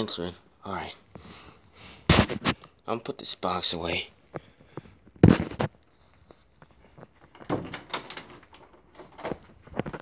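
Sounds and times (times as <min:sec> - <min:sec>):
knocks and thumps of objects moved: 0:02.1 - 0:02.6, 0:04.3 - 0:10.0.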